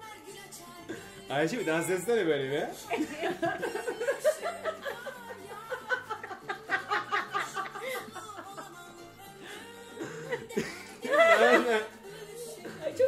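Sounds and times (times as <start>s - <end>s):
faint music: 0.0s - 13.0s
people laughing: 2.8s - 13.0s.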